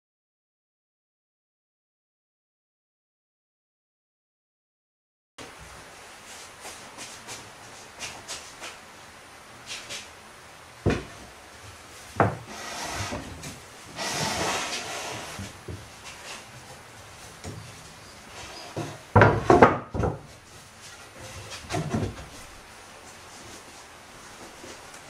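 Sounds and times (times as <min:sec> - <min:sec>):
wood scraping and sliding: 0:12.2 - 0:25.0
sharp wooden knocks: 0:19.1 - 0:20.3.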